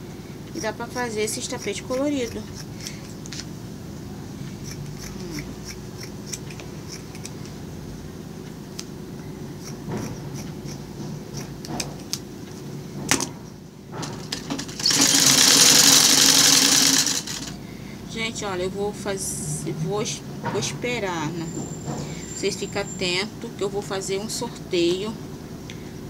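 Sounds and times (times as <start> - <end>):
scissors snipping: 0.6 - 3.5, 4.6 - 7.6, 9.6 - 12.3
sewing machine stitching: 14.1 - 17.6.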